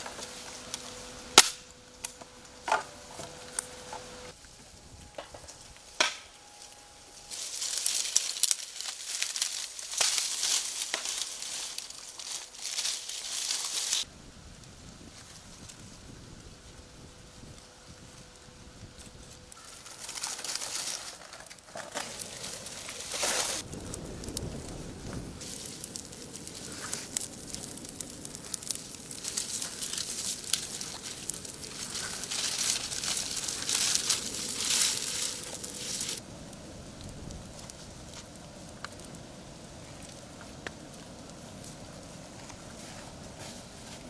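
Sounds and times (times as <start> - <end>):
bonfire crackling and popping: 0.0 - 44.0.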